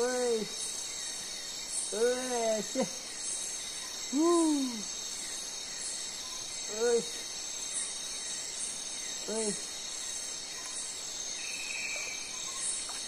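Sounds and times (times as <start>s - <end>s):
crickets and insects trilling: 0.0s - 13.0s.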